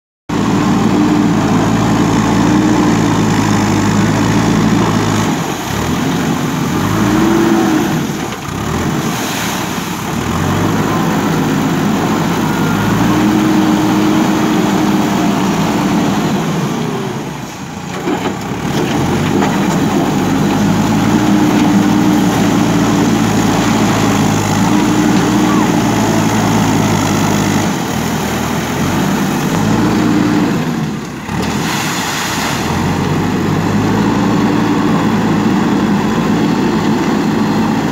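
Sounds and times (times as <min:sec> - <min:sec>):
diesel engine under load: 0:00.3 - 0:37.9.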